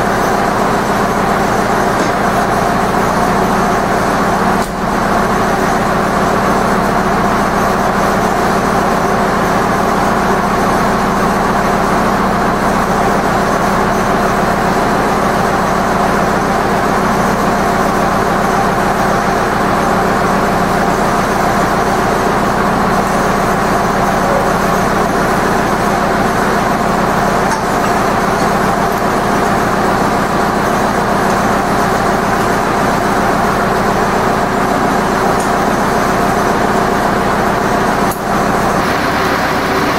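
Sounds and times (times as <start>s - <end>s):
tractor diesel engine idling: 0.0s - 39.9s.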